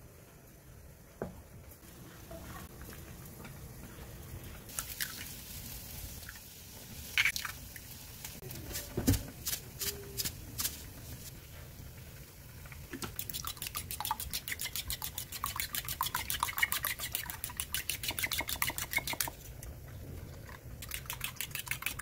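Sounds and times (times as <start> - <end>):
eggs cracking: 13.0 - 19.7, 20.4 - 22.0.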